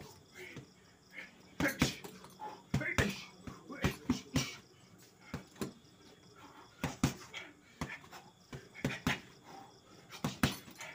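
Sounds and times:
fists punching heavy bag: 0:01.6 - 0:02.1, 0:02.7 - 0:04.6, 0:06.8 - 0:09.3, 0:10.1 - 0:10.9.

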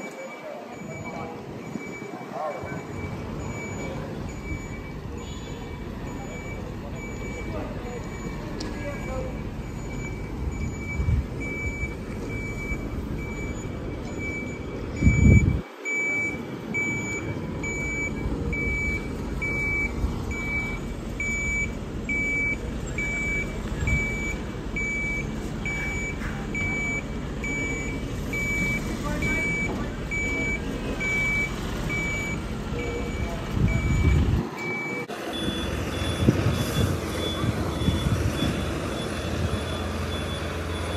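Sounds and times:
lorry warning alarm beeping: 0:00.0 - 0:40.9
truck engine running: 0:00.0 - 0:40.9
loud low rumble: 0:09.3 - 0:15.6.

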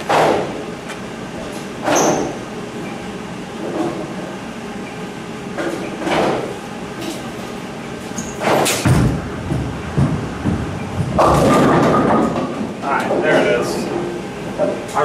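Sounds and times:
heavy machinery clunks: 0:08.2 - 0:13.3
low rolling rumble: 0:08.8 - 0:13.2.

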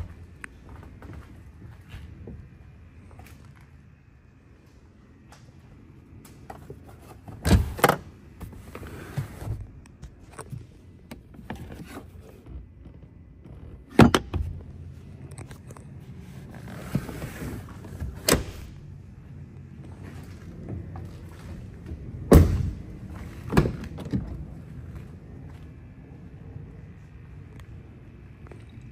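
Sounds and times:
low hum: 0:08.1 - 0:28.9.

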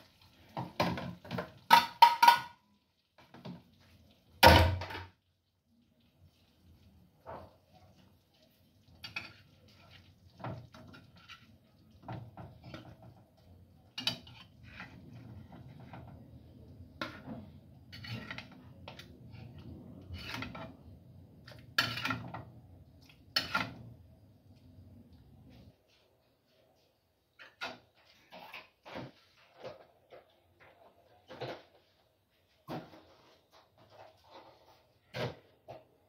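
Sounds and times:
plates and pots clinking: 0:00.5 - 0:02.7, 0:21.4 - 0:24.0
dishes scraping: 0:09.0 - 0:13.2, 0:13.8 - 0:16.4, 0:17.0 - 0:24.0, 0:27.4 - 0:31.7.

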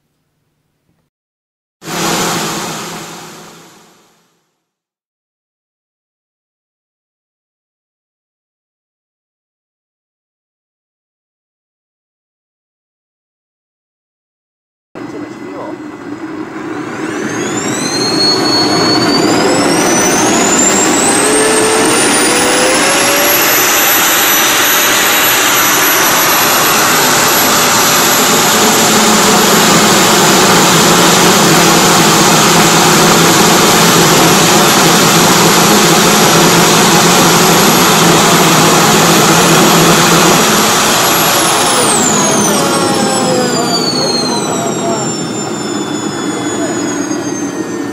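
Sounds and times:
jet thruster whine: 0:01.8 - 0:04.3, 0:15.0 - 0:47.9
combustion roar: 0:16.5 - 0:47.8.

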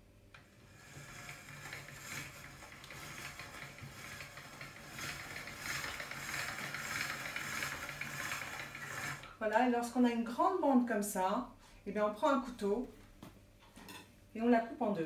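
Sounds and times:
pasta machine crank gears clicking: 0:00.4 - 0:09.4.

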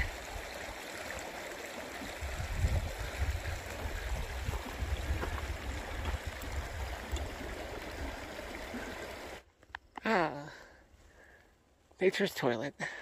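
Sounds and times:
creek flowing over rocks: 0:00.0 - 0:09.5.

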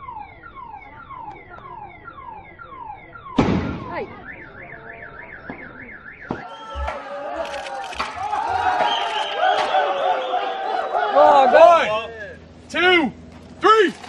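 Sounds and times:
electronic alarm: 0:00.0 - 0:06.9
loud thump: 0:03.4 - 0:03.9.

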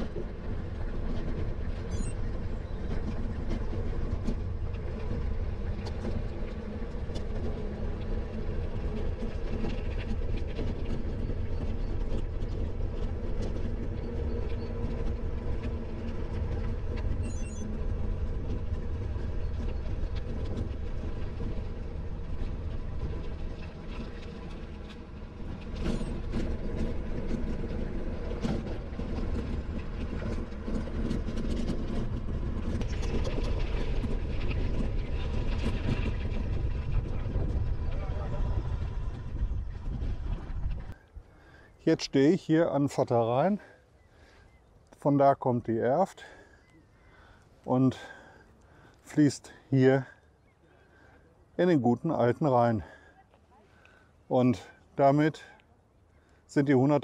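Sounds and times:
bicycle rattles and clicks: 0:00.0 - 0:41.7
bicycle tyres and wind rumble: 0:00.0 - 0:53.1.

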